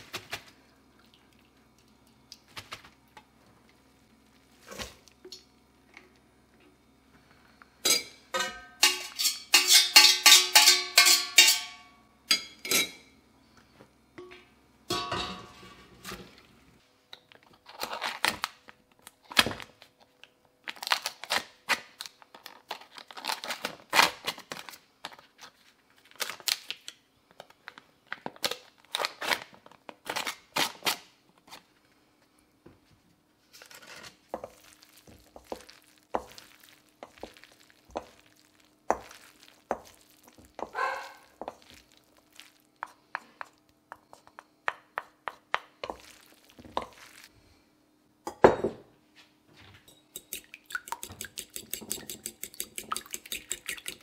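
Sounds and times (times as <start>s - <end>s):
paper wrapper crinkling: 20.6s - 27.0s
utensil scraping in steel bowl: 50.2s - 54.0s.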